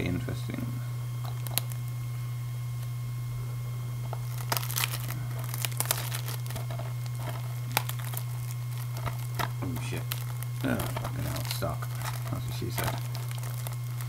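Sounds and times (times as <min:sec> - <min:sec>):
cellophane crinkling and tearing: 0:01.2 - 0:02.0, 0:04.0 - 0:14.0.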